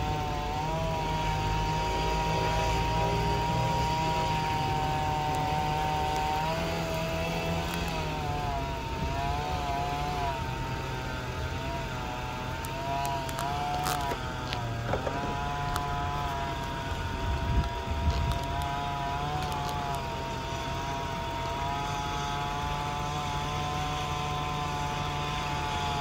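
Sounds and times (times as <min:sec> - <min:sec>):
engine running: 0:00.0 - 0:26.0.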